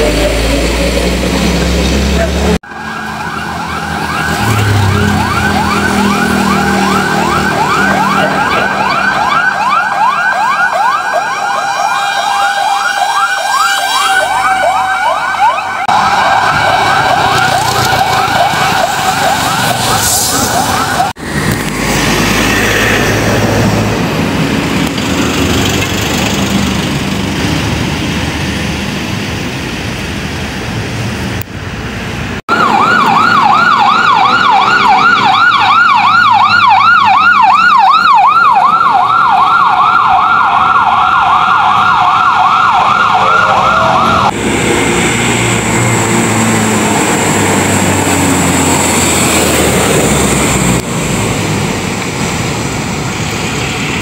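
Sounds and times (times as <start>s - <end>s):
fire truck siren yelping: 0.0s - 27.6s, 32.5s - 54.0s
road noise: 0.0s - 54.0s
vehicle engines: 0.0s - 54.0s.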